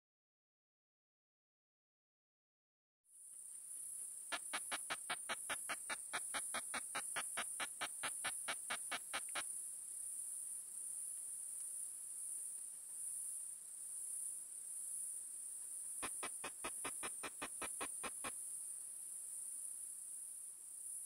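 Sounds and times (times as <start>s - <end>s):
steady high hiss: 3.3s - 11.3s, 16.0s - 21.0s
katydid clicking song: 4.3s - 9.5s, 16.0s - 18.4s.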